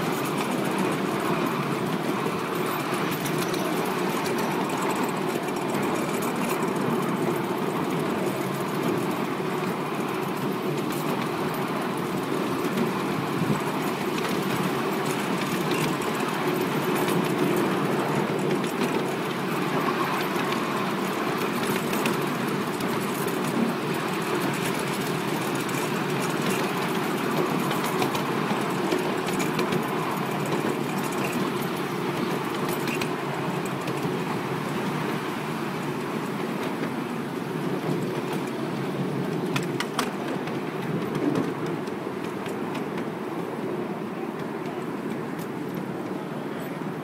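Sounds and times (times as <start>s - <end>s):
miniature train rumbling on track: 0.0s - 47.0s.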